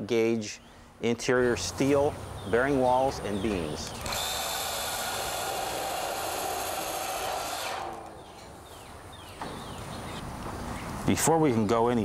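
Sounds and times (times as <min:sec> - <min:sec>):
cordless drill driving screw: 0:04.0 - 0:08.1.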